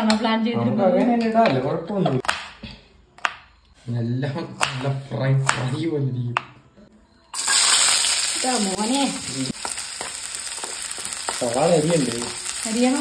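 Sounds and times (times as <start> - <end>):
shallots sizzling in hot oil: 7.4 - 13.0
spatula tapping pan: 9.5 - 13.0.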